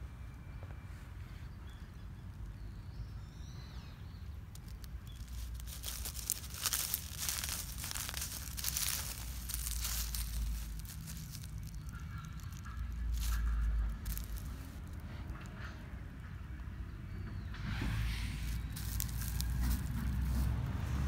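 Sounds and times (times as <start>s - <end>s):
dry leaves crunching underfoot: 4.3s - 15.6s, 17.6s - 21.0s.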